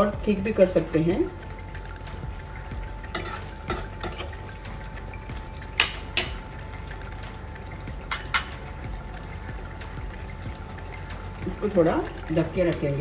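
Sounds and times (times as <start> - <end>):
spoon clinking against a pan: 3.0 - 4.7, 5.6 - 6.5, 8.0 - 8.7
metal spoon scraping a pan: 3.1 - 4.5.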